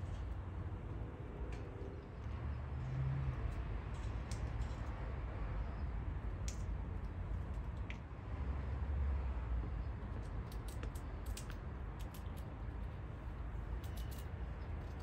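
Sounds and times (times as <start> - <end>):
light sharp clicks and taps: 3.5 - 5.2, 6.3 - 8.1, 9.6 - 12.9.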